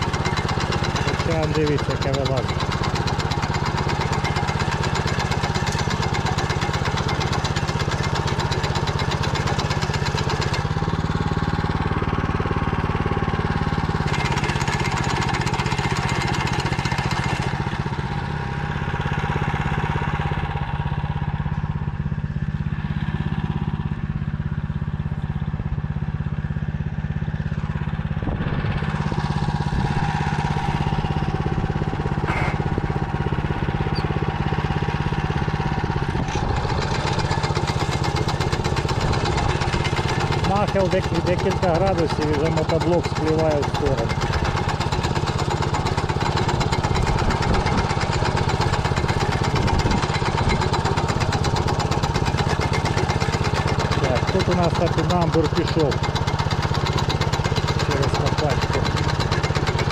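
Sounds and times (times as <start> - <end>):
walk-behind tractor engine running: 0.0 - 59.9.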